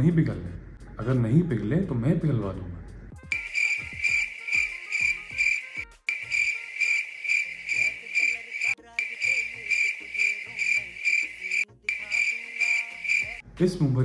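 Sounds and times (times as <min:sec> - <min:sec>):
cricket chirping: 0:03.3 - 0:13.4.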